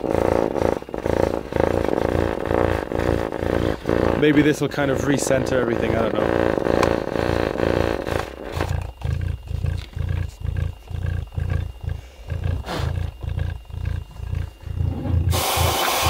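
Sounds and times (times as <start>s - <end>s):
buzz of rubbing voice coil: 0.0s - 16.0s
compressed air hissing: 14.8s - 16.0s.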